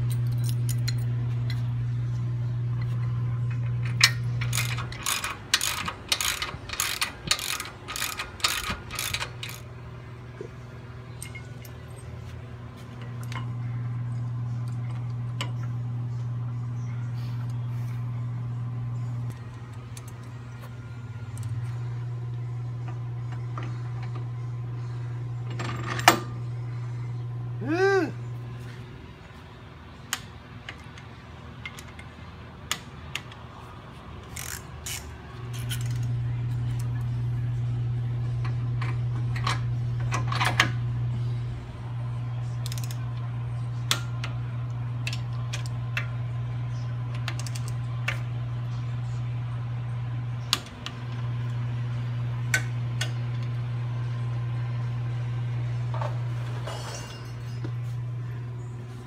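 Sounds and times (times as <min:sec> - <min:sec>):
steady low hum: 0:00.0 - 0:59.0
tools clinking on metal: 0:56.5 - 0:57.8.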